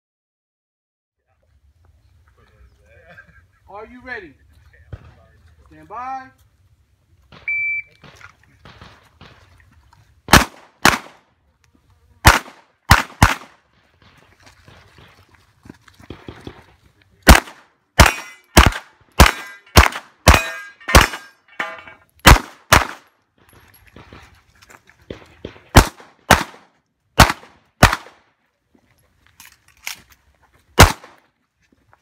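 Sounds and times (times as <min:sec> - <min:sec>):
handgun shots: 0:10.3 - 0:11.2, 0:12.2 - 0:13.6, 0:17.3 - 0:21.4, 0:22.2 - 0:23.0, 0:25.1 - 0:26.6, 0:27.2 - 0:28.2, 0:30.8 - 0:31.2
metallic ringing of targets: 0:18.0 - 0:18.6, 0:19.2 - 0:22.1.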